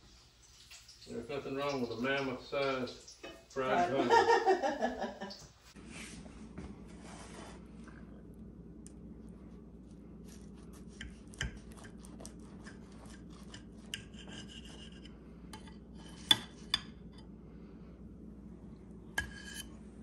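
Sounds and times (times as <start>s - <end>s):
knife sawing through crisp crust: 10.2s - 15.1s.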